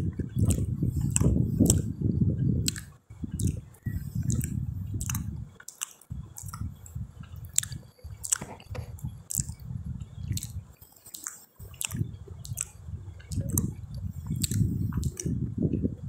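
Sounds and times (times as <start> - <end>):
close-up chewing with mouth smacks: 0.0 - 15.9.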